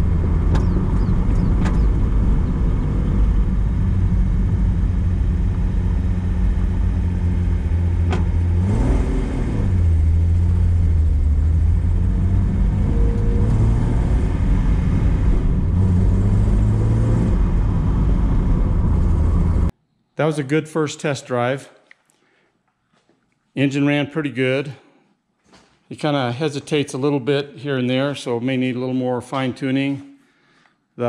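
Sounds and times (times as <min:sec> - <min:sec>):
car engine running: 0:00.0 - 0:19.7
low road rumble: 0:00.0 - 0:19.7.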